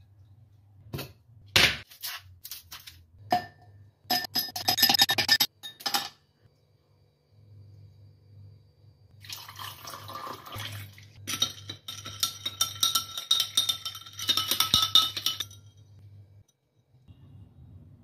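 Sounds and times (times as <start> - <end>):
metal spoon clinking against glass: 3.4 - 6.1, 11.3 - 15.9
fizzy liquid poured over ice: 9.2 - 11.1.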